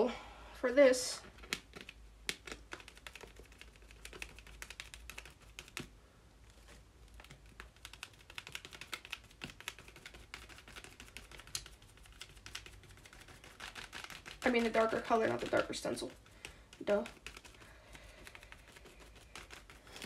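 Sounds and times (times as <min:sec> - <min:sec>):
stencil tapping and rustling: 0:01.2 - 0:05.9, 0:07.2 - 0:20.0
sponge dabbing paint: 0:07.4 - 0:20.0.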